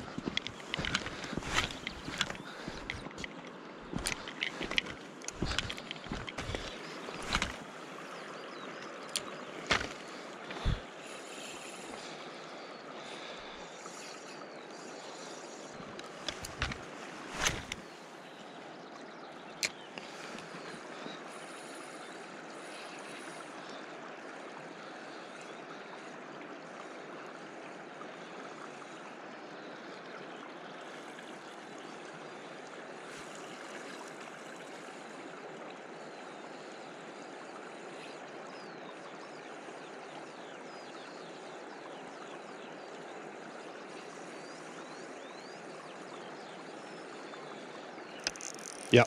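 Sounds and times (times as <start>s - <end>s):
river water rushing: 0.0s - 18.7s.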